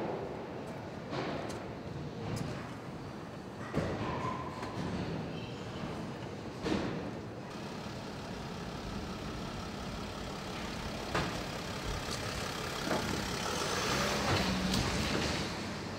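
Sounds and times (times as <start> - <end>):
factory machinery running: 5.8 - 15.9.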